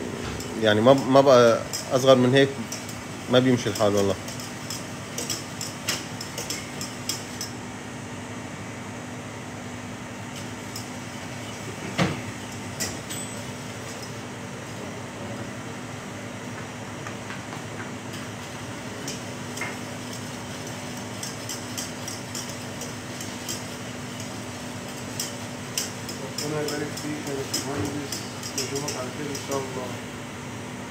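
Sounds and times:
steady low hum: 0.0 - 30.9
whisk clinking in saucepan: 19.0 - 29.9.

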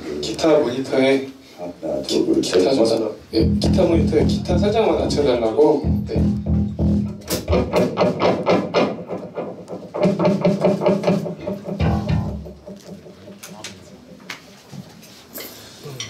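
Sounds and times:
bass guitar: 3.4 - 13.3
electric guitar plucked notes: 3.4 - 13.3.

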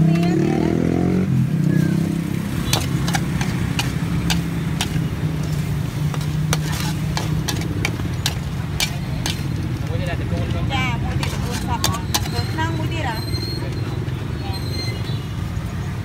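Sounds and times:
engine revving: 0.0 - 5.6
metal spatula scraping steel wok: 2.5 - 9.8, 10.8 - 13.8.

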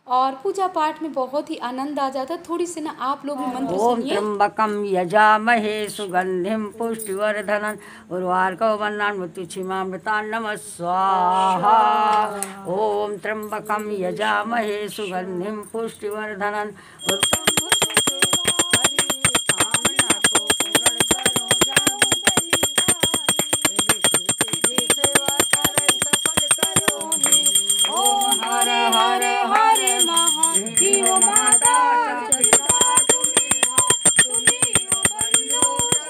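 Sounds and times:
brass hand bell ringing rapidly: 17.0 - 36.0
women singing: 24.6 - 36.0.

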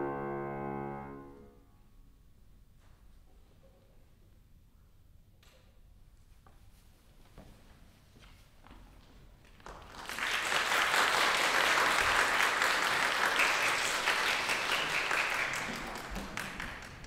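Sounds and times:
audience applauding: 9.5 - 17.0.

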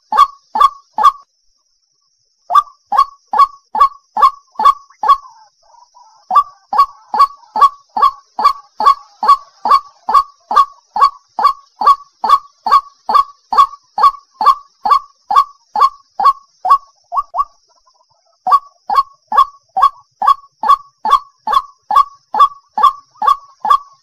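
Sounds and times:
bird calling rising notes: 2.5 - 17.6.

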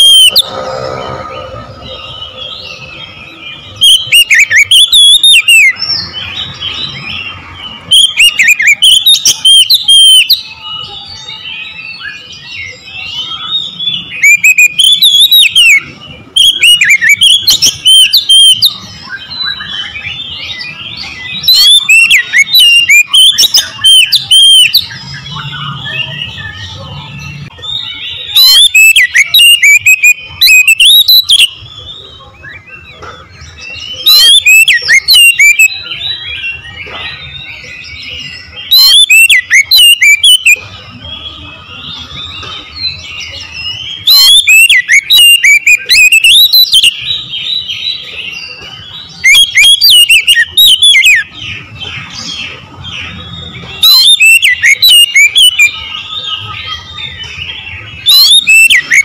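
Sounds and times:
birds chirping softly: 0.0 - 59.0
magpie-robin singing whistled phrases: 0.0 - 59.0.

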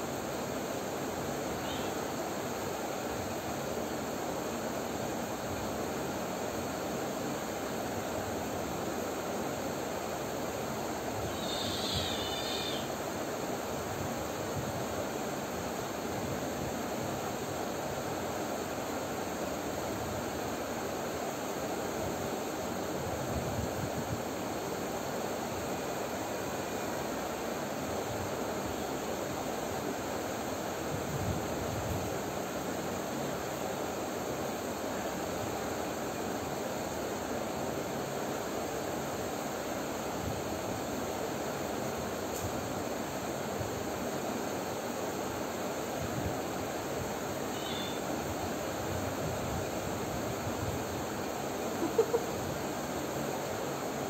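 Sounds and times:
steady background hiss: 0.0 - 54.0.

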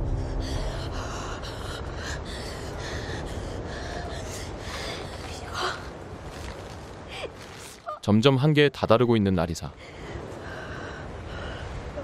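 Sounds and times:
steady low rumble: 0.0 - 6.4.

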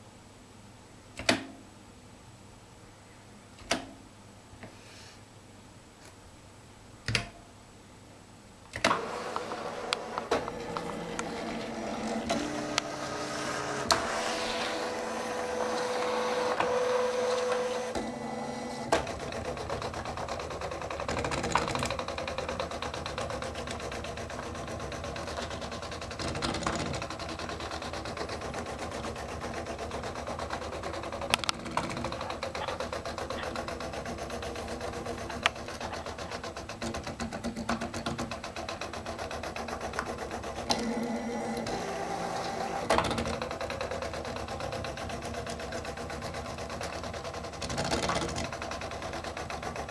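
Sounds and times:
pen plotter mechanical whirring: 8.8 - 49.9
sharp plotter clicks: 18.8 - 49.9.

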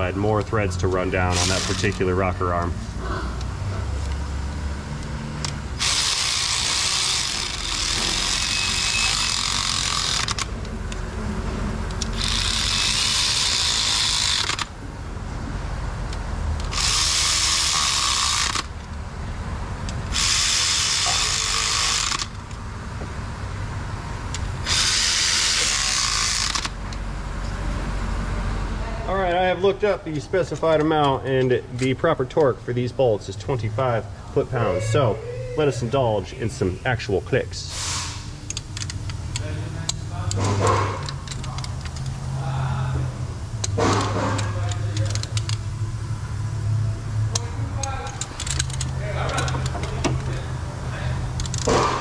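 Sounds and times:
ratchet clicking: 0.4 - 2.7, 5.0 - 11.0, 11.8 - 14.8, 16.1 - 19.0, 19.8 - 22.7, 24.2 - 27.5, 37.9 - 42.4, 43.5 - 52.0.

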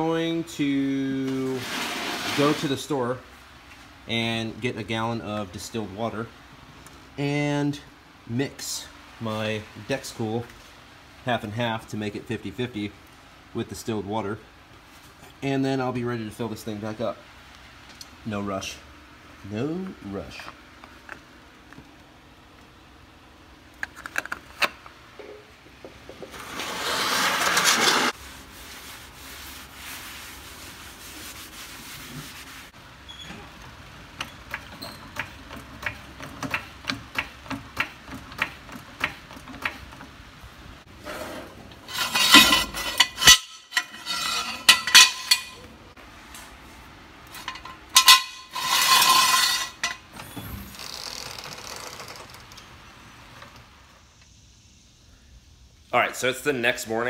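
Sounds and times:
metal scraping and rattling: 26.3 - 28.2, 41.0 - 45.7, 47.3 - 50.1.

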